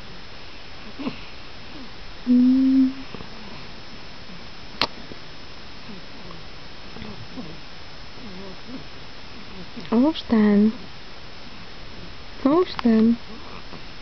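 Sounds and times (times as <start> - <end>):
person humming a note: 2.3 - 3.1.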